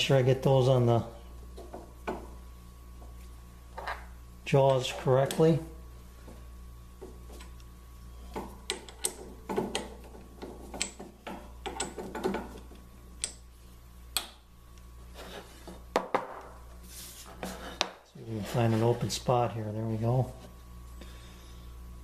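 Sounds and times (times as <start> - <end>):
hand brushing wooden table: 16.8 - 19.2.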